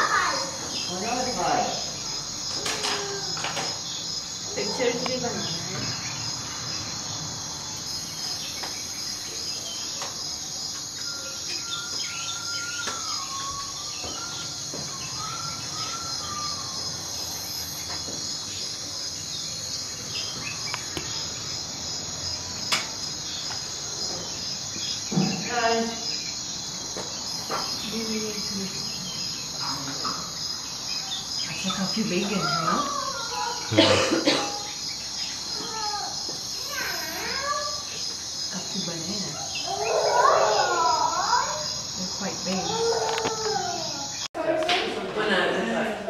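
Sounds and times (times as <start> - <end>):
insect chirping: 0.0 - 46.0.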